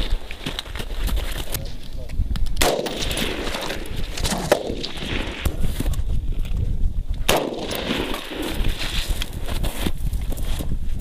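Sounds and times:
rifle shots with echo: 2.6 - 5.6, 7.3 - 8.9.

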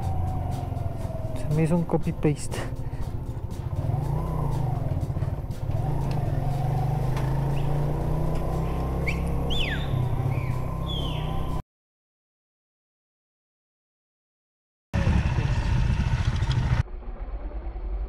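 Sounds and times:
motorcycle engine running: 0.0 - 11.6, 15.0 - 18.0
people whistling: 9.0 - 11.6.

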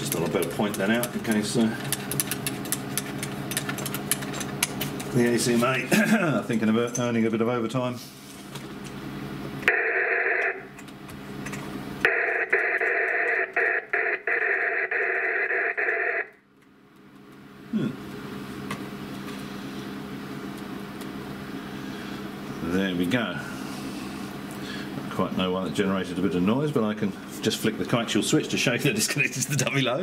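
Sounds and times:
radio speaker buzzing: 9.6 - 10.8, 12.0 - 16.4
radio clicks: 9.7 - 16.4.

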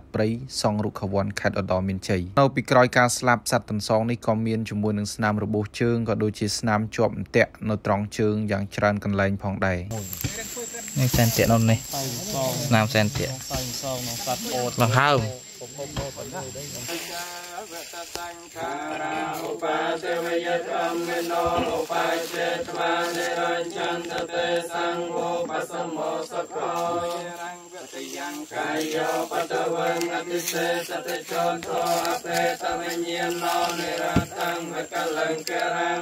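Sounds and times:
monks chanting: 9.9 - 36.0.

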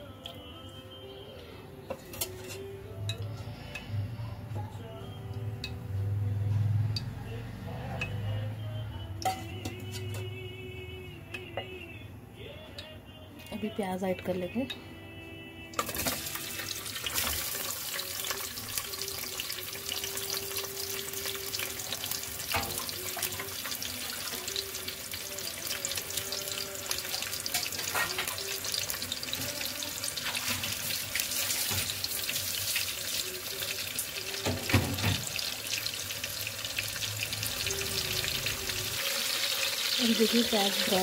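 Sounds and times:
onions sizzling in hot oil: 15.8 - 41.0.

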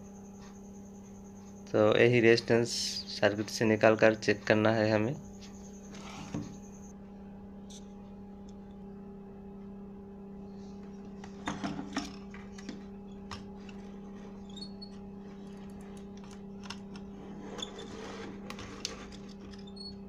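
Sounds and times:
steady low hum: 0.0 - 20.0
clicks from handled wiring: 14.5 - 17.1.

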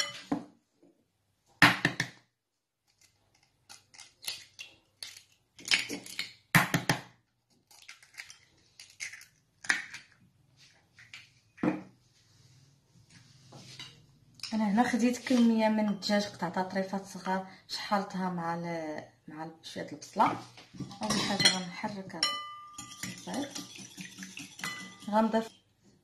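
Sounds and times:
eggs cracking on ceramic bowl: 3.5 - 10.2.

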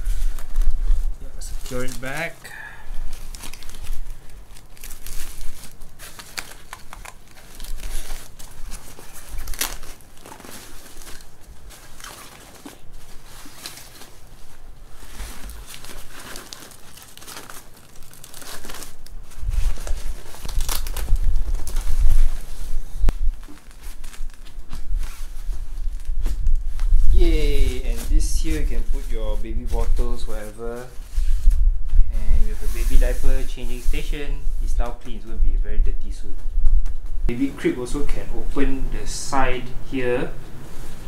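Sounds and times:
nylon fabric rustling: 0.0 - 34.8, 40.2 - 41.0
velcro ripping: 3.2 - 12.8, 19.6 - 22.3.

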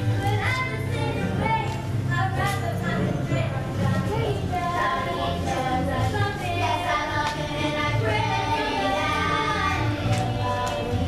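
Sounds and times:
children singing: 3.9 - 11.0.

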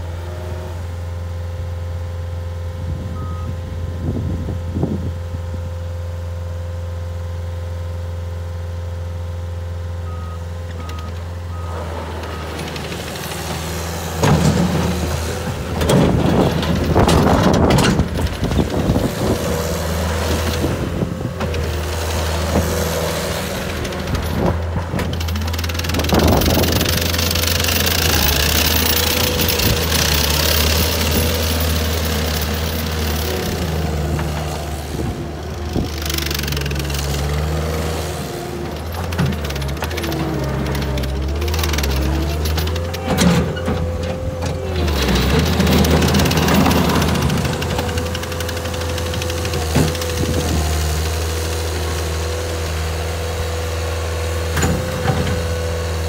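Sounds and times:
diesel engine running: 0.0 - 56.0
backup alarm beeps: 3.2 - 3.6, 10.0 - 11.8
rattling and clanking on gravel: 10.6 - 56.0.

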